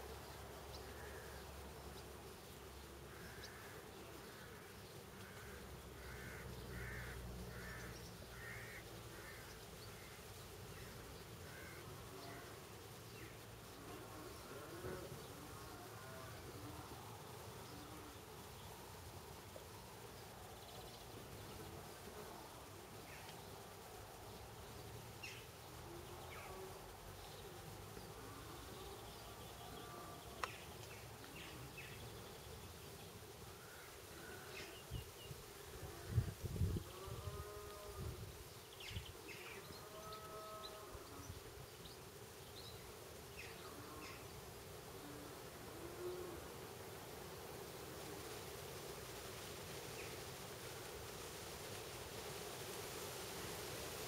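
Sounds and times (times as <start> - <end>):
flying insects buzzing: 0.0 - 54.0.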